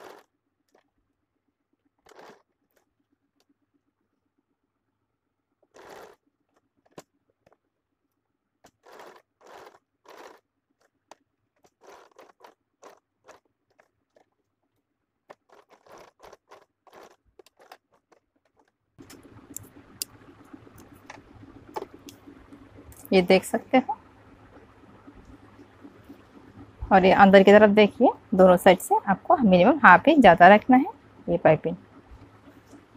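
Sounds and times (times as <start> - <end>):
sewing machine stitching: 0.0 - 0.8, 2.0 - 2.9, 5.6 - 7.6, 8.6 - 11.0, 11.6 - 14.4, 15.3 - 22.2
steady low hum: 19.0 - 32.9.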